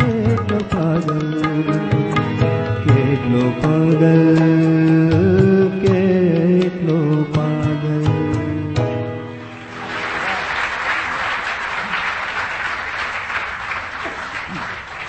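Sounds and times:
musical accompaniment: 0:00.0 - 0:10.6
audience applauding: 0:09.5 - 0:15.0.

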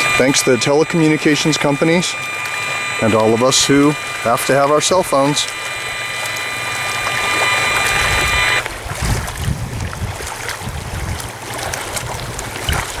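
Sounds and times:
meter speaker electronic tone: 0:00.0 - 0:08.7
wind buffeting microphone: 0:08.2 - 0:13.0.

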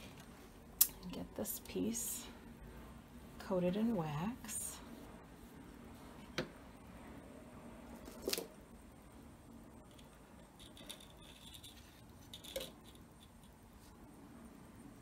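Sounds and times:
soft scratchy brushing: 0:02.8 - 0:06.3.

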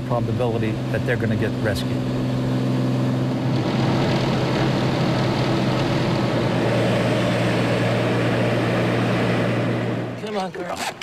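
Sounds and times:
propeller plane engine in cabin: 0:00.0 - 0:10.6.

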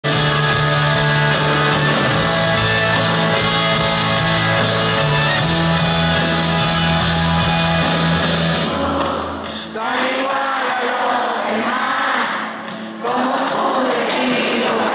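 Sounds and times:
bass guitar: 0:00.0 - 0:09.6
electric guitar: 0:00.0 - 0:10.0
drums: 0:00.0 - 0:10.4, 0:12.3 - 0:14.9.

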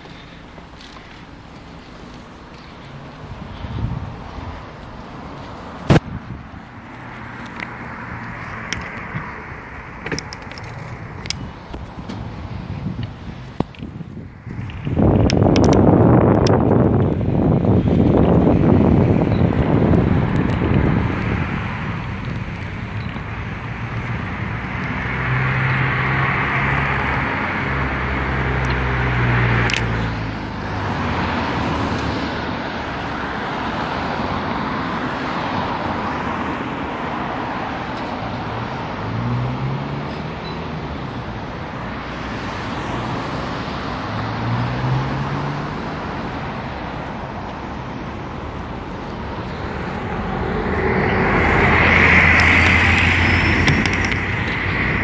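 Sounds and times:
cars driving past: 0:00.0 - 0:55.0
car engines revving away: 0:14.4 - 0:55.0.

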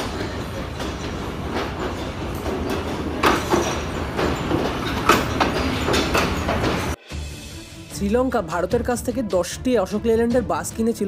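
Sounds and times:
rail vehicle engine rumbling: 0:00.0 - 0:07.0
wheels clacking over rail joints: 0:00.0 - 0:07.0.

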